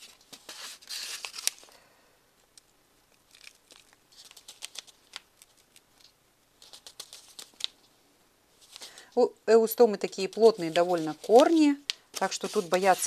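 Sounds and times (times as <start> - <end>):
plastic cup crinkling: 3.1 - 7.8, 10.1 - 13.0.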